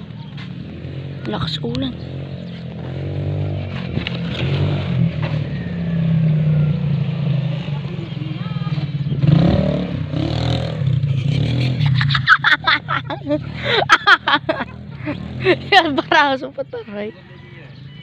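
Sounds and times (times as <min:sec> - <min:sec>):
people talking: 0:01.2 - 0:02.0, 0:07.7 - 0:08.9, 0:12.7 - 0:17.7.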